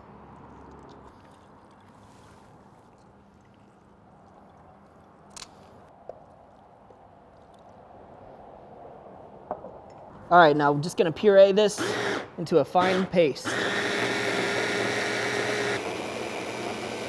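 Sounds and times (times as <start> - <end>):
wet squishing of citrus: 0.0 - 7.8.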